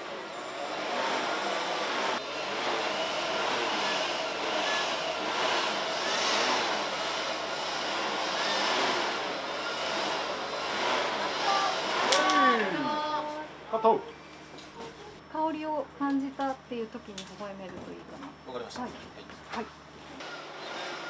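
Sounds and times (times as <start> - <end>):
handheld blower running: 0.6 - 13.4, 20.2 - 21.0.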